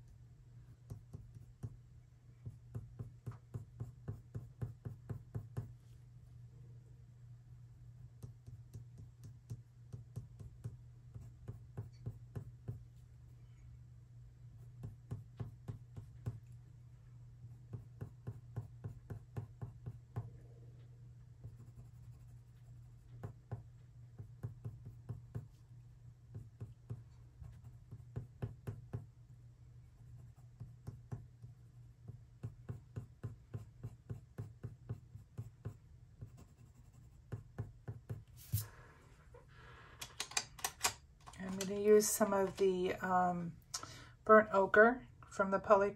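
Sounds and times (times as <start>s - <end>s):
steady low hum: 0.0s - 45.9s
pencil tapping on paper: 0.8s - 1.8s, 2.4s - 5.8s, 8.2s - 12.9s, 14.7s - 16.5s, 17.7s - 20.3s, 21.4s - 25.6s, 26.3s - 29.1s, 30.1s - 38.3s.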